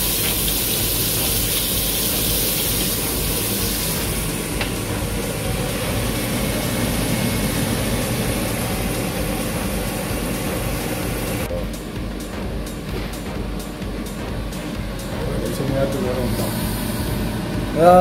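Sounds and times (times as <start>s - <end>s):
patties sizzling in a frying pan: 0.0s - 4.8s
steady low hum: 0.8s - 18.0s.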